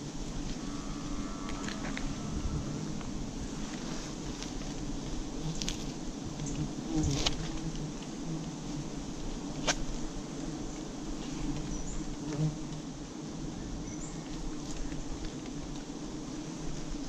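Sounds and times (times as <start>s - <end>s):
bees buzzing: 0.0s - 9.5s.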